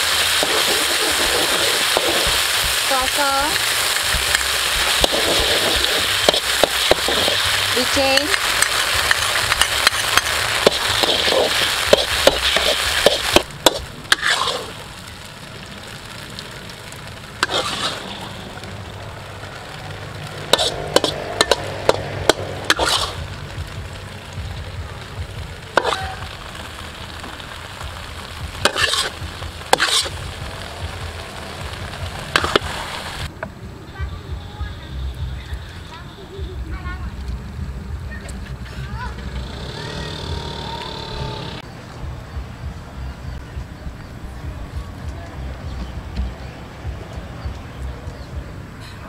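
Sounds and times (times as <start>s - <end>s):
sauce sizzling in a wok: 0.0s - 33.3s
metal spatula scraping a wok: 4.3s - 14.8s, 17.4s - 18.4s, 20.4s - 23.3s, 25.8s - 26.2s, 28.6s - 30.3s
metal ladle clinking and scraping: 20.5s - 22.0s, 29.8s - 30.2s.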